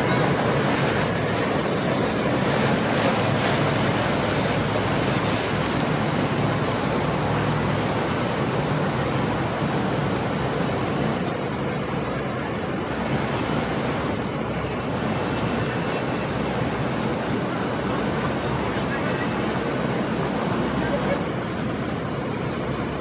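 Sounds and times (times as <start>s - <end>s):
outboard motors humming: 0.0s - 23.0s
water wash: 0.0s - 23.0s.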